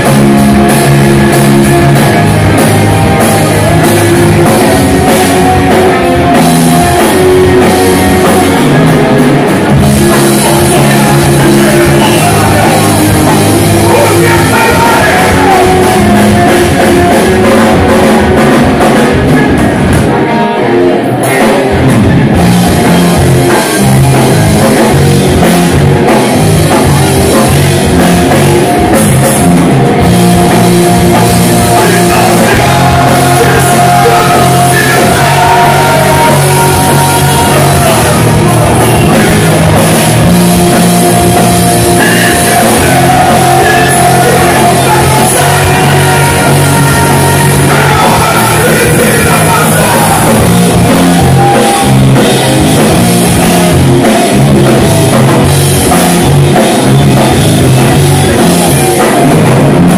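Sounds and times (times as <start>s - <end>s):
person singing: 0.0s - 19.7s, 30.4s - 53.8s
drum kit: 0.0s - 59.9s
electric guitars: 0.0s - 59.9s.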